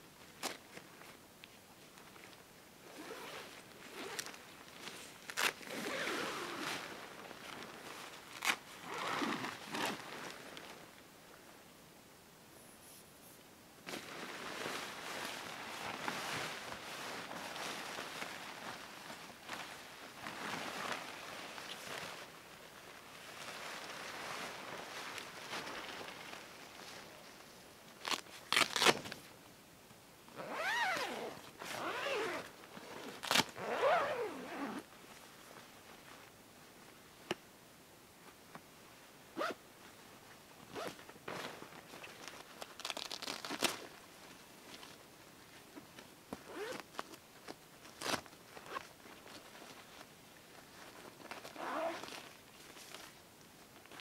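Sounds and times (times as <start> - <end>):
tent fabric rustling: 1.9 - 11.0, 13.8 - 29.3, 30.3 - 37.0, 39.4 - 54.0
tent zipper being pulled: 2.8 - 4.3, 5.3 - 6.9, 8.4 - 10.3, 30.4 - 34.9, 39.4 - 39.6, 42.8 - 43.8, 46.5 - 46.8, 51.4 - 52.3.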